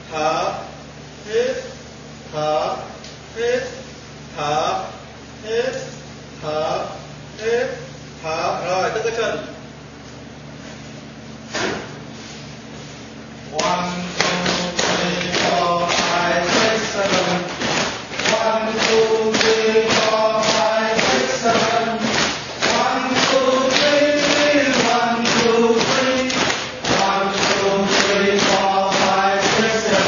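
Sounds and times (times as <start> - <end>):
chanted singing: 13.6 - 17.6, 18.2 - 30.0
sharp rhythmic taps: 13.6 - 30.0.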